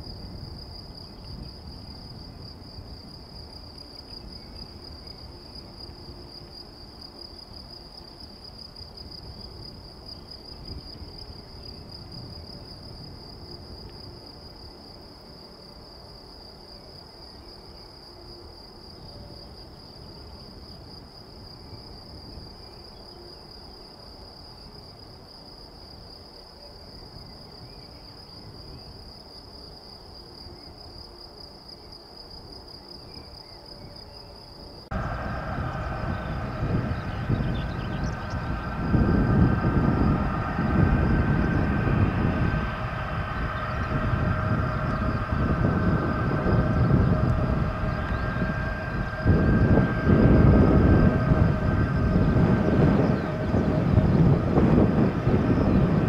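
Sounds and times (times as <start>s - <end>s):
crickets chirring: 0.0s - 56.0s
distant jet engines rumbling: 34.9s - 56.0s.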